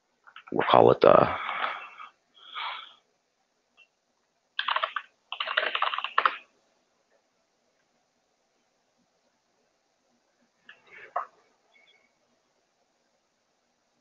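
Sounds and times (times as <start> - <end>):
typing on computer keyboard: 4.6 - 6.5.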